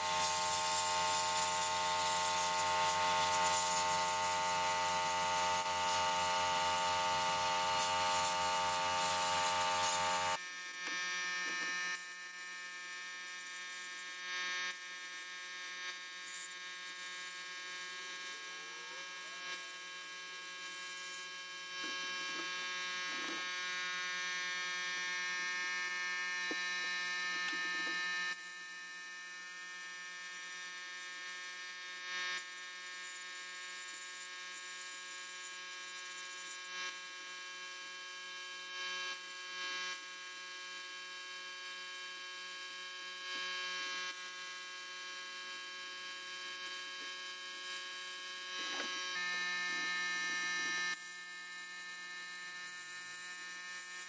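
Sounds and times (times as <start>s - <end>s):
blast cabinet buzzing hum: 0.0s - 12.1s, 48.4s - 51.1s.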